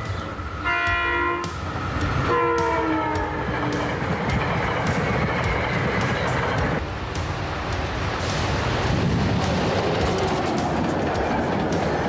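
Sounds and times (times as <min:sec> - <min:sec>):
train cars rumbling on rails: 0:00.0 - 0:12.0
train horn blasts: 0:00.6 - 0:03.5.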